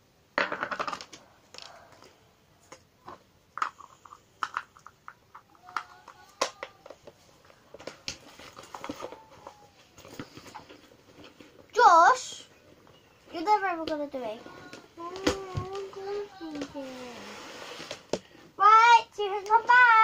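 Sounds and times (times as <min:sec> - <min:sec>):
plastic clicks and crinkles: 0:00.9 - 0:11.6
plastic rustling: 0:05.7 - 0:13.6, 0:14.2 - 0:18.4.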